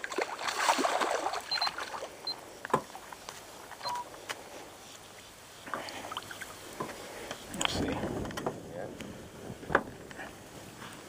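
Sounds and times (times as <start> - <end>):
fish splashing at water surface: 0.0 - 2.2.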